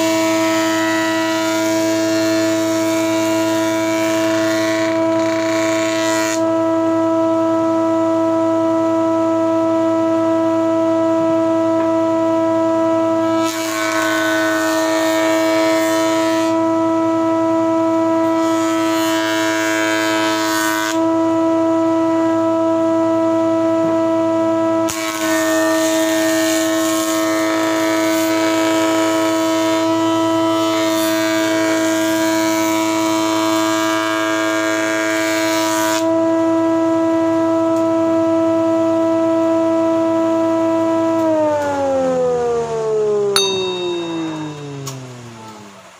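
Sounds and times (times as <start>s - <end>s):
planer high-pitched whine: 41.1s - 45.9s.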